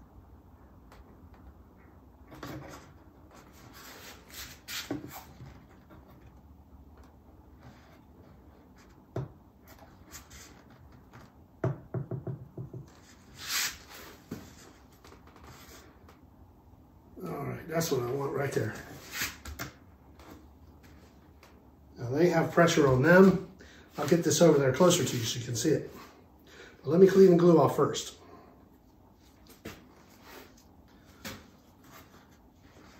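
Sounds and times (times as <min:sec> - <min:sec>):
wooden knocks and clicks: 0:11.6 - 0:13.0.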